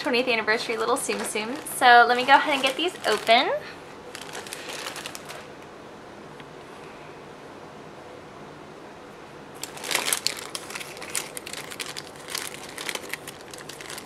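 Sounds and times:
plastic bag crinkling: 0.0s - 5.6s, 9.6s - 14.0s.

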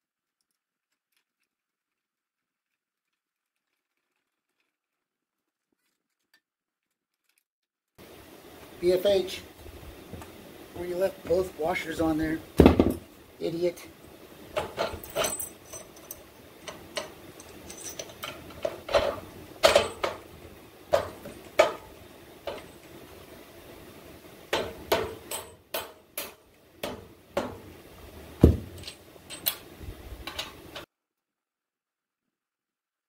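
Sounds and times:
metal bolt knocks and clinks: 14.5s - 23.0s, 24.5s - 27.7s, 28.4s - 30.9s.

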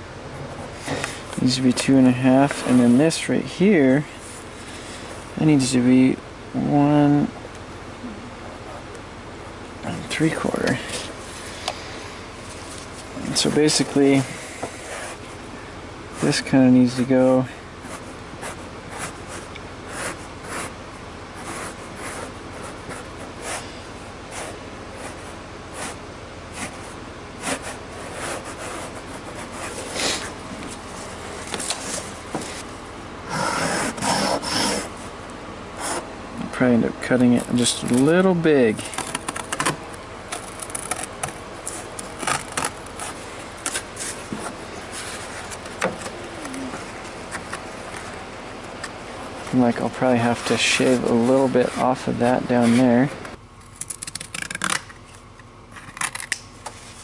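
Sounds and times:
cardboard rubbing and scraping: 0.3s - 1.2s, 12.4s - 15.3s, 17.8s - 35.1s, 38.7s - 48.2s, 50.3s - 53.0s
marker pen scratching on cardboard: 17.9s - 20.8s, 21.4s - 23.7s, 24.3s - 30.4s, 33.3s - 34.9s
scissors cutting cardboard: 33.3s - 34.9s, 38.8s - 39.8s.

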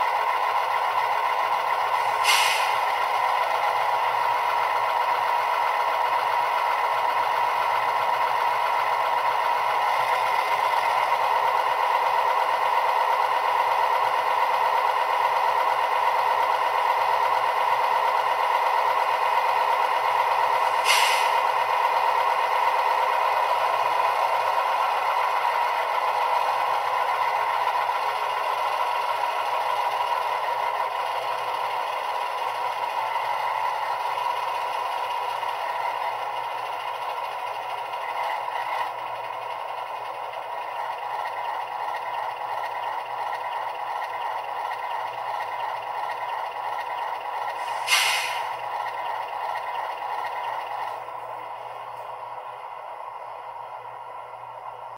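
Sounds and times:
thin diesel engine idling: 0.0s - 54.9s
air hiss: 2.1s - 2.9s, 20.7s - 21.4s, 47.6s - 48.6s.

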